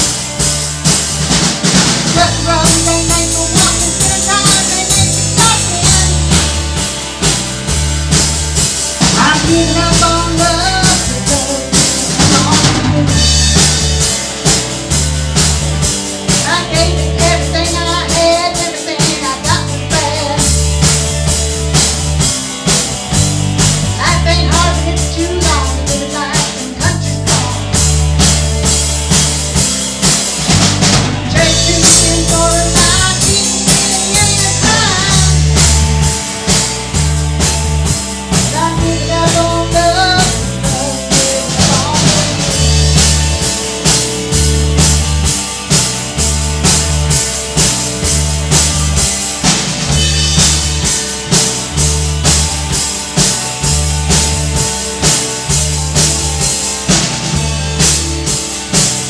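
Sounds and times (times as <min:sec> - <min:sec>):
drum kit: 0:00.0 - 0:59.0
electric bass: 0:00.0 - 0:59.0
electric guitar: 0:00.0 - 0:59.0
woman singing into a microphone: 0:02.1 - 0:06.4, 0:09.2 - 0:13.2, 0:16.4 - 0:20.5, 0:24.0 - 0:27.8, 0:31.3 - 0:35.5, 0:38.4 - 0:42.6.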